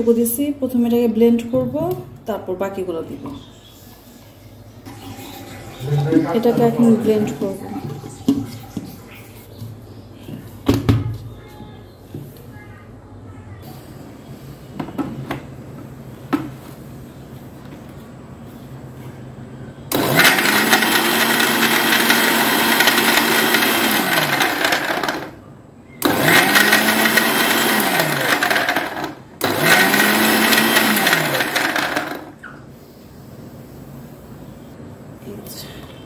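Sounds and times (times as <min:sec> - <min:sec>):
blender motor running: 0:19.9 - 0:25.4, 0:26.0 - 0:32.4.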